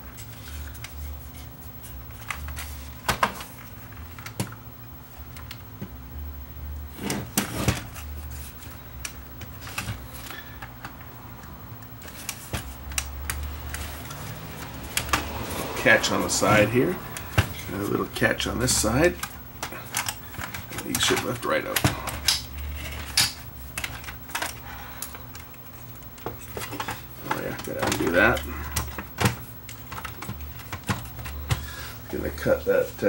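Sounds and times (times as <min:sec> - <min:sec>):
low steady hum: 0:00.0 - 0:33.0
plastic parts clicking and knocking: 0:18.6 - 0:31.7.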